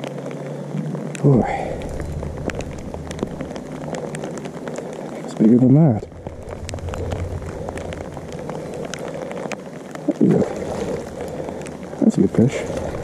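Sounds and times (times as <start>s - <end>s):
small ticks: 0.0s - 13.0s
fish splashing in water: 6.1s - 13.0s.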